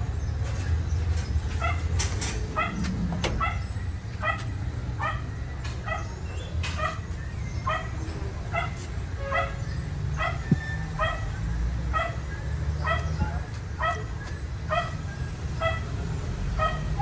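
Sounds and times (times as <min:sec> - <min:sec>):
dog barking: 0:02.6 - 0:06.2, 0:07.7 - 0:11.3, 0:11.9 - 0:13.2, 0:13.8 - 0:15.0, 0:15.6 - 0:15.9, 0:16.5 - 0:17.0.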